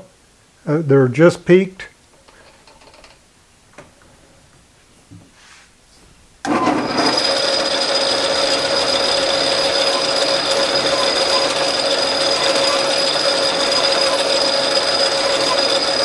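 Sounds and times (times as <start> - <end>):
metal lathe running: 6.5 - 16.0.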